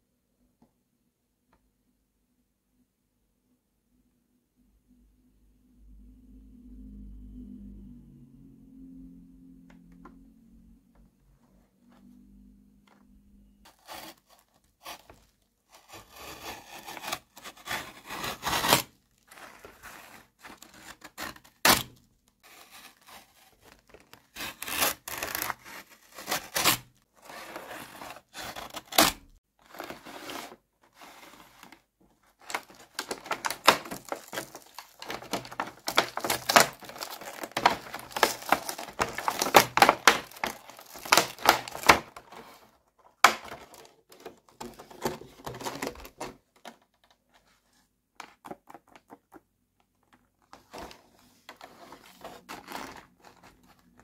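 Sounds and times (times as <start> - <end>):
knife cutting plastic packaging: 13.7 - 46.4, 51.6 - 54.0.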